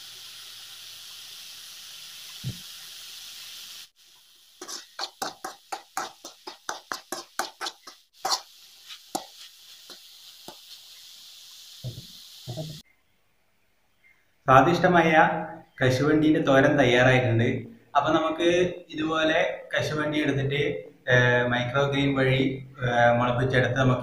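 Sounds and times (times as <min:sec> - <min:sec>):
frying hiss: 0:00.0 - 0:12.8
spoon knocking on pan: 0:04.6 - 0:10.8
metal spoon scraping a pan: 0:04.6 - 0:11.0.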